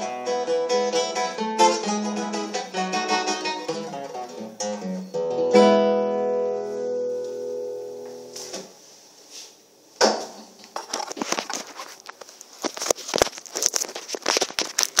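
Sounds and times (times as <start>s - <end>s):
classical guitar chord: 0.0s - 8.4s
phone handling rustling and clicking: 10.7s - 15.0s.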